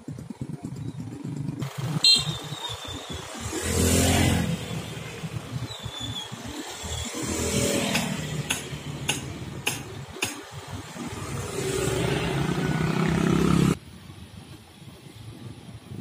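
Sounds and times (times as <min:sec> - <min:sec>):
motor scooters passing by: 0:00.1 - 0:13.8
sharp clacks: 0:07.9 - 0:10.6.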